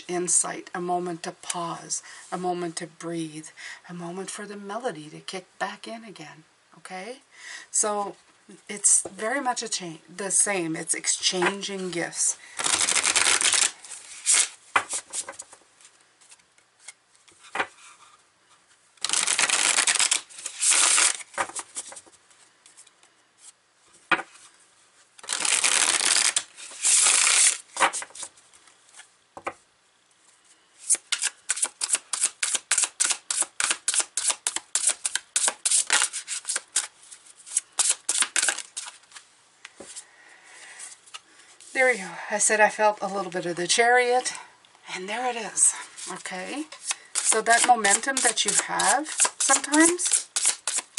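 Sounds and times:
cards sliding while shuffled: 12.6s - 18.2s, 19.0s - 24.6s, 25.2s - 29.1s, 30.8s - 40.0s, 45.9s - 50.9s.

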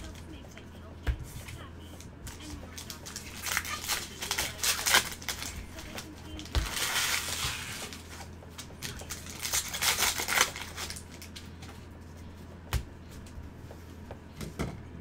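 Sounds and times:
foil wrapper crinkling and tearing: 2.3s - 11.5s
cards being handled: 2.3s - 13.4s.

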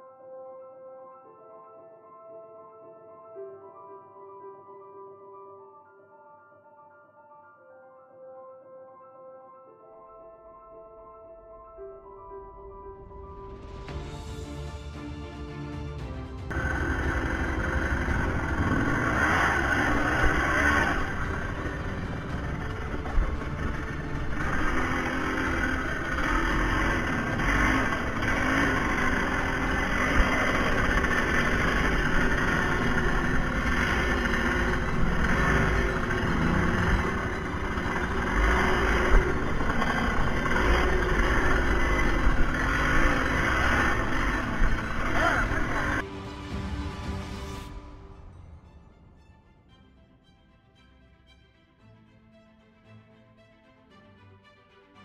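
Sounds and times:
atv engine revving: 16.5s - 46.0s.

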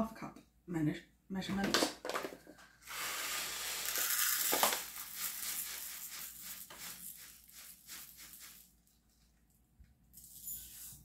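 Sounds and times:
salt pouring hiss: 2.8s - 8.8s
salt rattling trickles: 2.9s - 8.8s.

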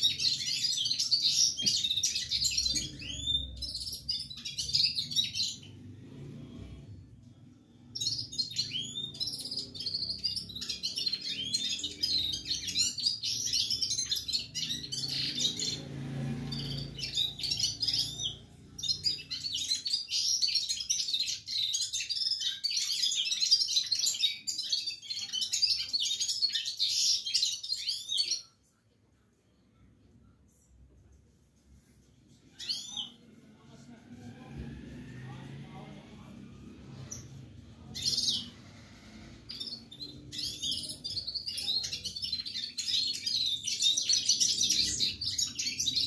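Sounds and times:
bird twittering song: 0.0s - 5.8s, 7.8s - 28.6s, 39.4s - 46.0s.

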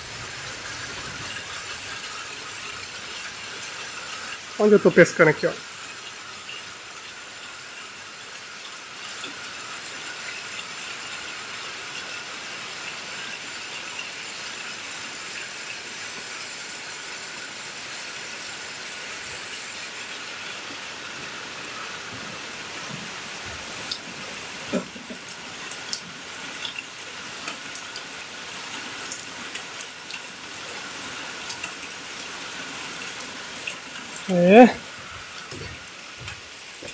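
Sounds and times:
rain falling on river and foliage: 0.0s - 36.9s
sharp raindrop ticks: 23.8s - 36.9s.

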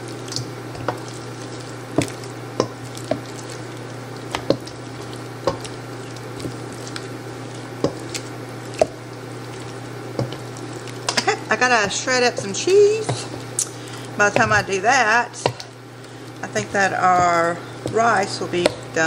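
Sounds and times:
wet squishing of stirred sauce: 0.0s - 19.0s
spatula knocking against bowl: 16.5s - 18.9s.

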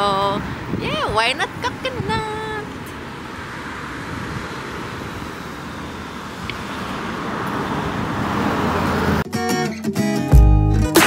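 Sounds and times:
car passing: 0.0s - 9.3s
street traffic: 0.0s - 11.0s
guitar music: 9.2s - 11.0s.

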